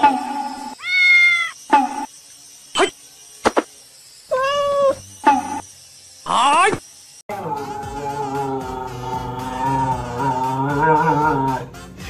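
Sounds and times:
cat meowing: 0.8 - 1.6, 4.3 - 5.0.

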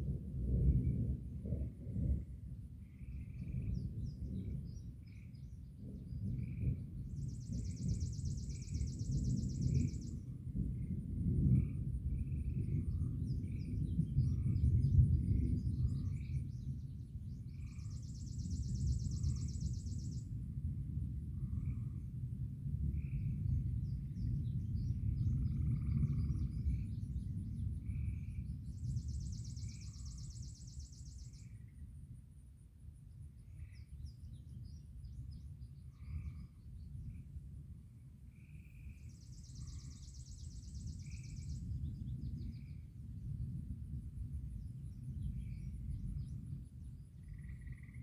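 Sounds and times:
distant thunder rumbling: 0.0 - 30.9.

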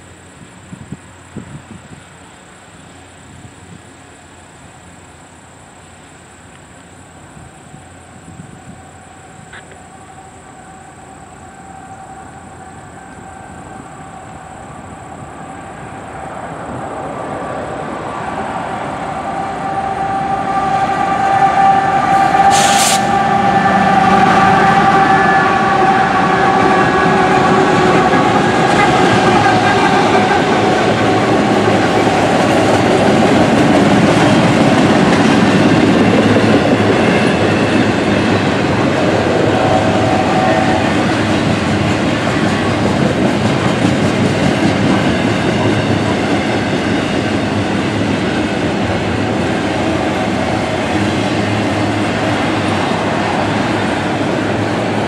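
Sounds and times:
diesel locomotives passing: 0.0 - 55.0.

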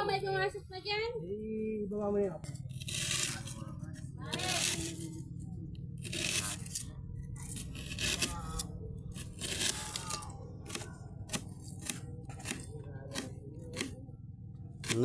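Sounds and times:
knife slicing onion: 6.0 - 6.8, 7.5 - 14.0, 14.8 - 15.0.

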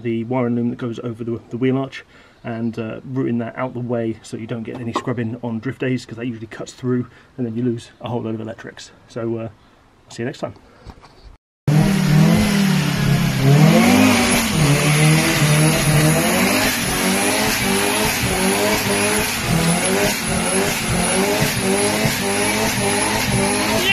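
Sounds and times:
rotary engine revving: 11.7 - 23.9.

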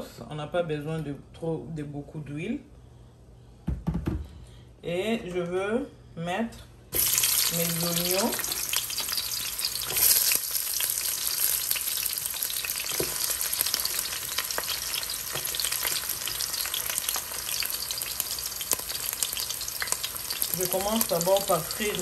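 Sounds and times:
onions sizzling in hot oil: 7.0 - 22.0.

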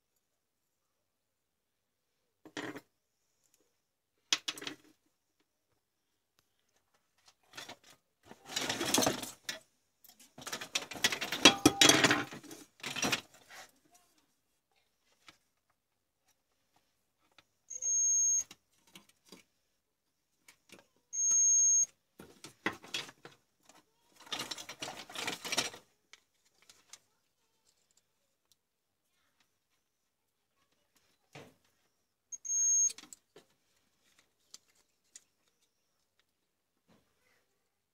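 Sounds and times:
hands handling plastic and leads: 4.2 - 30.0, 30.6 - 37.1
multimeter continuity beep: 17.7 - 18.5, 21.2 - 21.9, 32.3 - 33.0.

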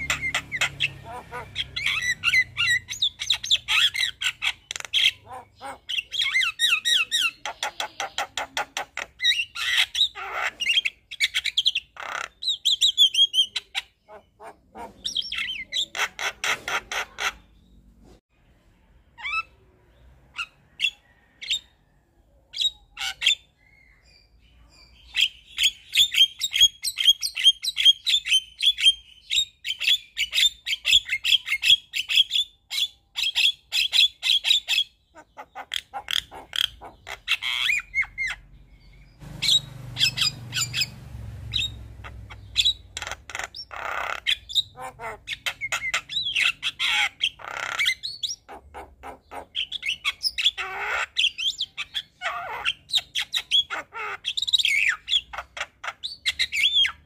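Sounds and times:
myna singing and chattering: 0.0 - 9.2.

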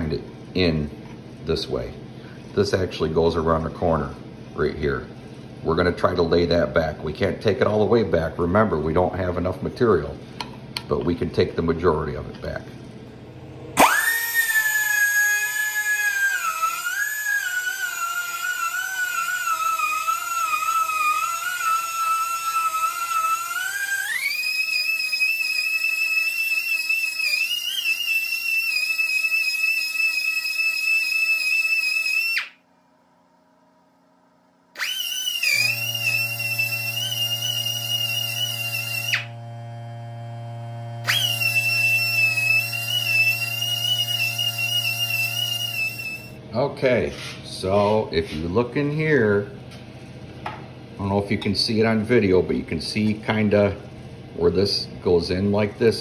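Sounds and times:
pneumatic die grinder whining: 13.8 - 32.6, 34.8 - 46.4.

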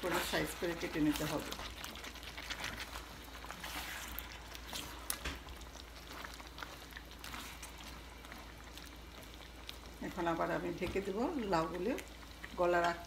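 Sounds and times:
spatula stirring curry: 0.0 - 9.9
low sizzle: 0.0 - 13.0.

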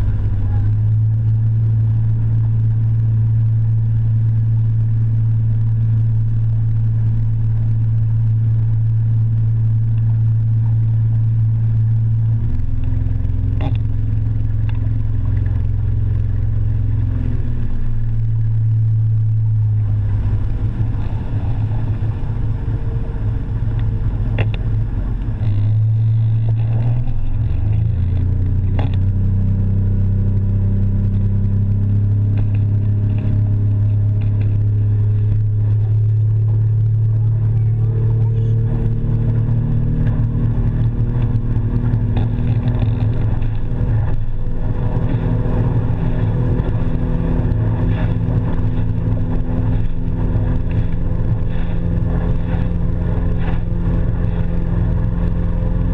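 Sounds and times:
motorboat engine droning: 0.0 - 55.9
engine knocks: 18.0 - 29.6, 31.1 - 55.9.

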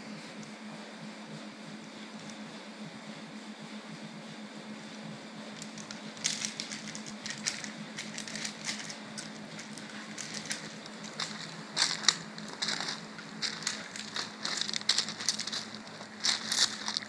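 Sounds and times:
steady low hum: 0.0 - 17.0
gravel crunching under paws: 5.6 - 17.0.

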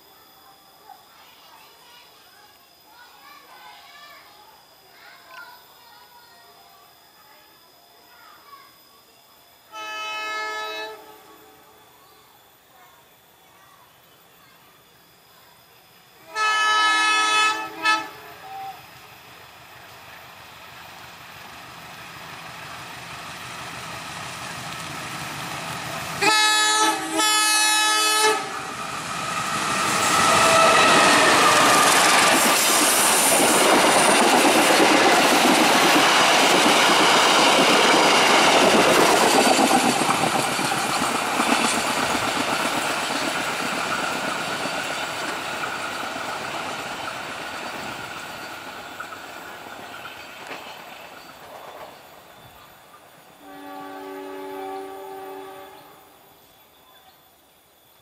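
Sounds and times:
locomotive air horn blasts: 9.7 - 11.7, 16.2 - 18.3, 26.2 - 28.6, 53.4 - 56.0
train wheels on rails: 17.3 - 56.4.

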